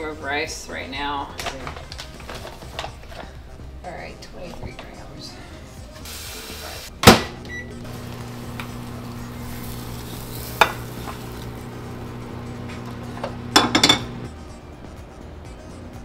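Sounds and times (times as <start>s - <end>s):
microwave oven humming: 7.1s - 16.0s
tap water running: 7.8s - 14.2s.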